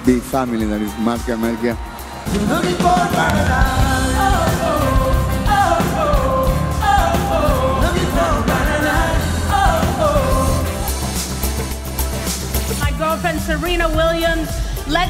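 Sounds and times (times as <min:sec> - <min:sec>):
pop-rock band playing: 0:00.0 - 0:14.8
person singing: 0:02.3 - 0:11.2
steady bass line: 0:02.3 - 0:15.0.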